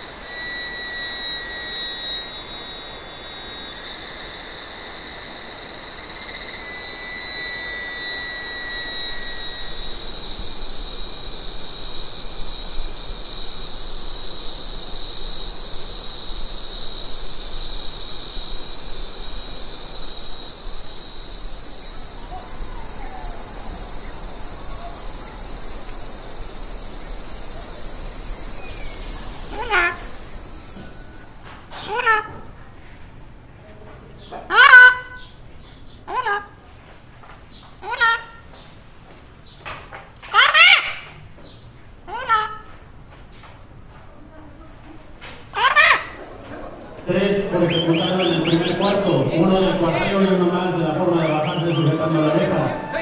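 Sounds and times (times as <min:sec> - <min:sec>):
pulsing insect trill: 0:00.0 - 0:32.2, 0:46.9 - 0:53.0
insects trilling: 0:00.0 - 0:32.3, 0:40.3 - 0:41.2, 0:45.6 - 0:53.0.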